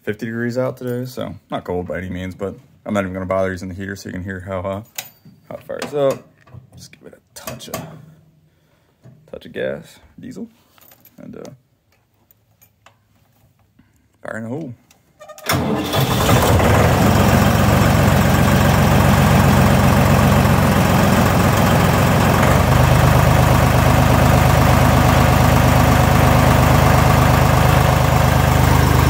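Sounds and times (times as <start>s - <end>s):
starter motor cranking: 15.4s - 23.2s
diesel engine running: 15.5s - 29.0s.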